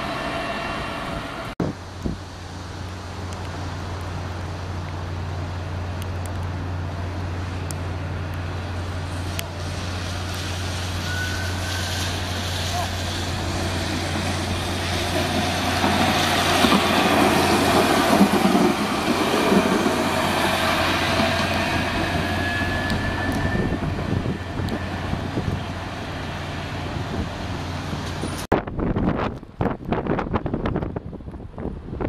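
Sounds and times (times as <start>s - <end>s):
electric tram passing: 0.0s - 32.0s
broad hiss of wheels: 8.4s - 28.5s.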